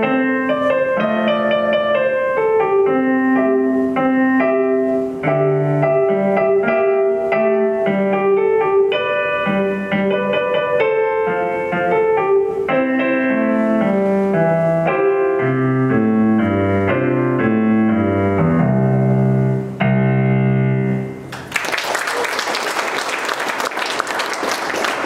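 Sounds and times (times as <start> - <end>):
electronic keyboard piano melody: 0.0 - 21.3
audience applause: 21.3 - 25.0.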